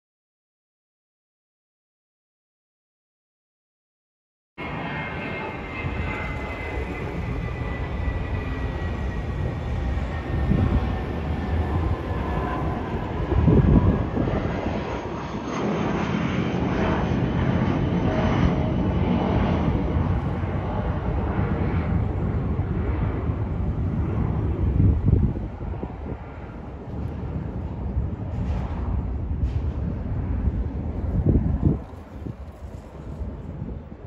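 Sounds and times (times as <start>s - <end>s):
jet engines rumbling overhead: 4.6s - 34.0s.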